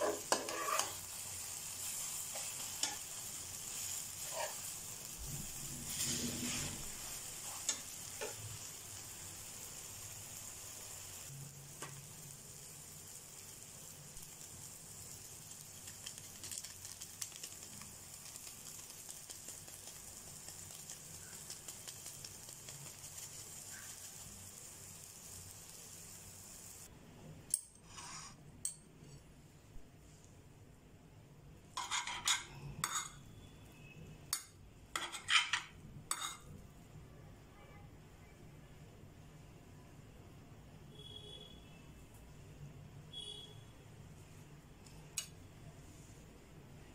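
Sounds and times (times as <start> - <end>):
metal spatula scraping a pan: 0.0 - 4.8, 5.5 - 8.4, 27.8 - 28.4, 31.8 - 33.2, 34.9 - 36.5
omelette sizzling in a pan: 0.0 - 26.9, 31.7 - 36.6.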